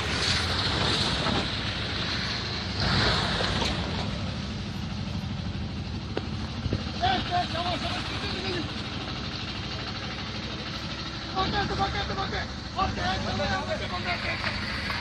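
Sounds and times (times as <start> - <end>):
tunnel traffic engines and tyres: 0.0 - 15.0.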